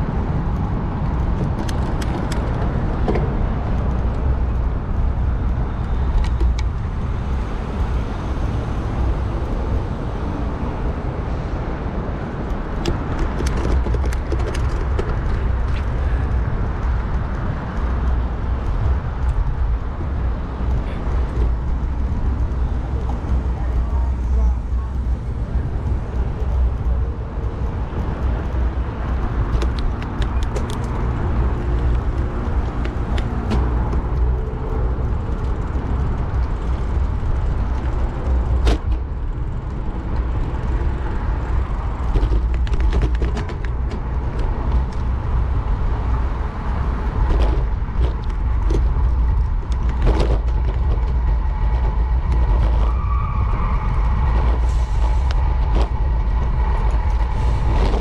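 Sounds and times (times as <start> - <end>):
traffic noise: 0.0 - 58.0
wind buffeting microphone: 0.0 - 58.0.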